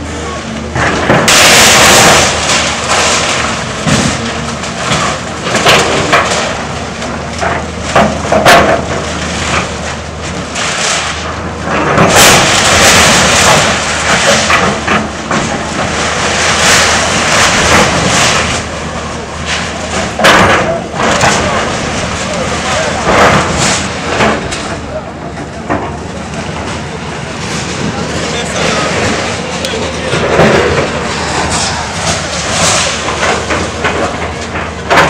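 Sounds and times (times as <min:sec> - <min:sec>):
diesel engine running: 0:00.0 - 0:35.0
loud crashes of falling debris: 0:00.6 - 0:35.0
metal roofing scraping: 0:19.4 - 0:35.0.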